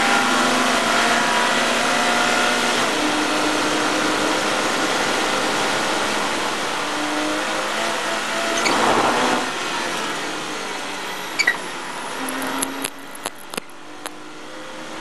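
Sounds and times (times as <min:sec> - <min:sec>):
race car engine from cockpit: 0:00.0 - 0:15.0.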